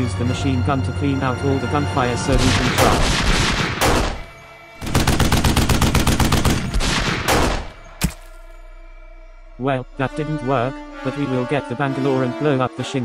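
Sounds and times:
single sharp gunshot: 2.4s - 4.2s, 6.8s - 8.4s
machine-gun fire: 2.4s - 7.8s.

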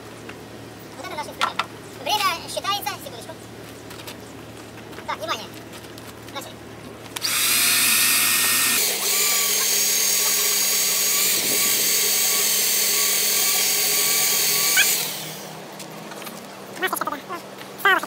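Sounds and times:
electric drill boring into steel: 7.2s - 15.6s.

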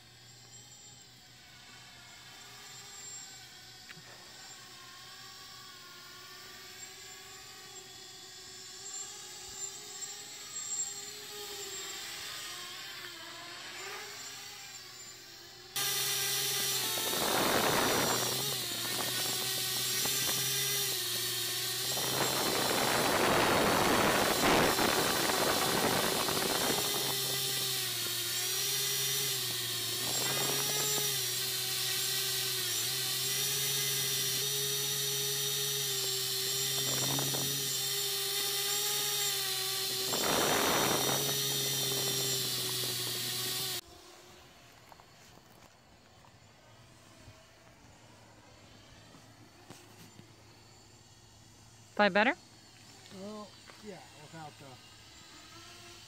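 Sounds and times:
drone motors whining: 0.0s - 56.0s
wind noise gusts: 16.9s - 19.5s, 21.9s - 27.4s, 40.0s - 42.2s.

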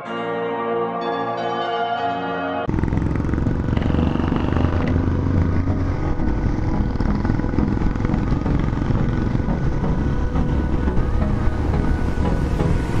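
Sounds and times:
motorcycle engine running: 2.7s - 13.0s.

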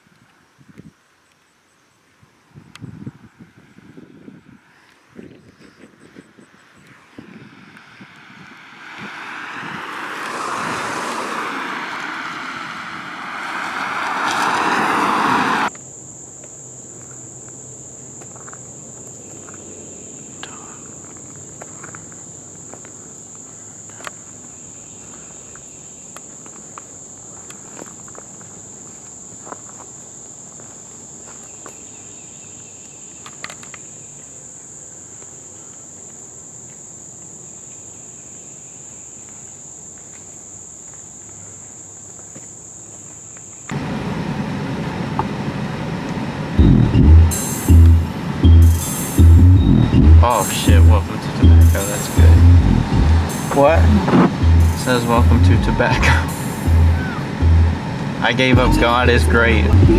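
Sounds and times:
car passing at speed: 7.8s - 15.7s, 50.3s - 59.8s
high-pitched insect chorus: 14.3s - 43.8s, 48.7s - 49.7s, 50.3s - 52.4s, 53.2s - 53.8s, 54.6s - 58.6s.

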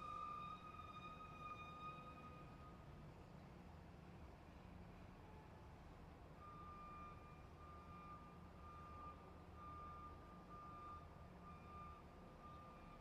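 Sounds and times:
truck reversing alarm beeping: 6.4s - 13.0s.

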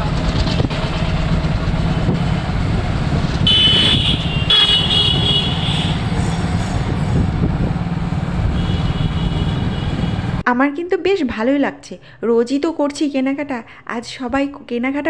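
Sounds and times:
street traffic rumble: 0.0s - 10.4s
high-pitched vehicle horn: 3.4s - 7.2s, 8.5s - 10.3s.

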